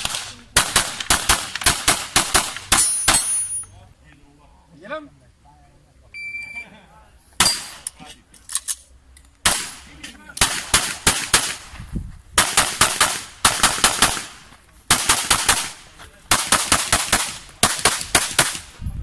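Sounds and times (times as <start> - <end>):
rapid gunshots: 0.0 - 3.2, 10.4 - 11.6, 12.4 - 18.7.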